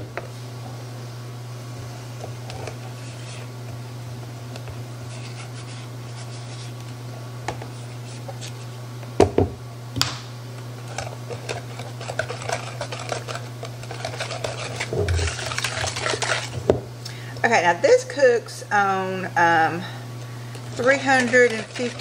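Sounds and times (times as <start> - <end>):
whisk scraping bowl: 1.9 - 3.5, 5.0 - 6.8, 10.8 - 16.7, 20.6 - 22.0.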